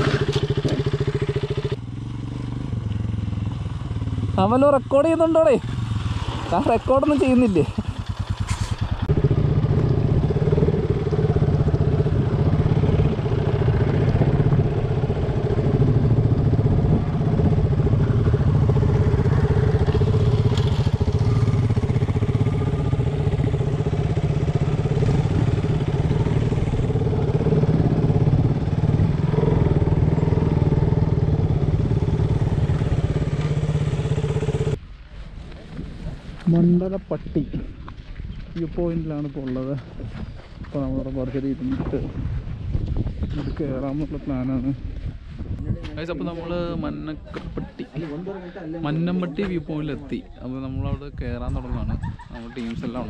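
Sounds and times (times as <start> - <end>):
motorcycle engine running: 0.0 - 34.8.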